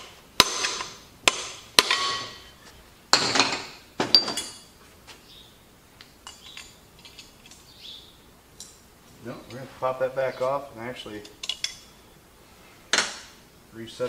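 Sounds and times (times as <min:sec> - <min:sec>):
hammer striking steel: 0:00.0 - 0:02.5.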